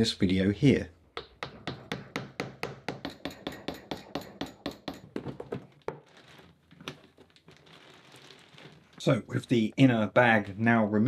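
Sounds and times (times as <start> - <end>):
rustling plastic and foil: 5.7 - 9.2.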